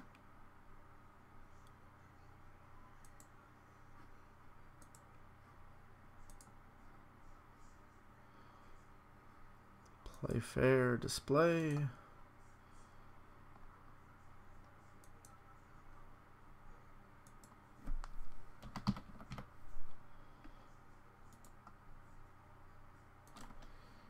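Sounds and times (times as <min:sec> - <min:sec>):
typing on computer keyboard: 0:17.3 - 0:19.5, 0:23.3 - 0:23.7
key or mouse clicks: 0:23.2 - 0:23.7.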